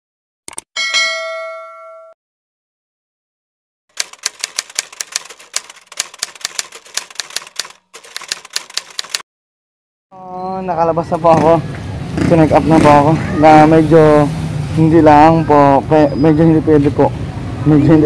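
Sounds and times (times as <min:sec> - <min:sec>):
typewriter key clacks: 0:00.5 - 0:00.7, 0:04.0 - 0:09.2
bell-like ding: 0:00.8 - 0:02.2.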